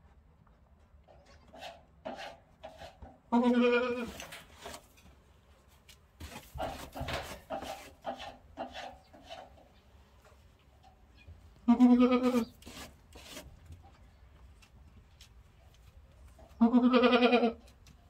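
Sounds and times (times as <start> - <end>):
goat bleating: 1.1 - 1.8, 3.3 - 4.3, 11.6 - 12.6, 16.6 - 17.7
hoof scraping straw: 1.5 - 9.7, 11.9 - 13.8.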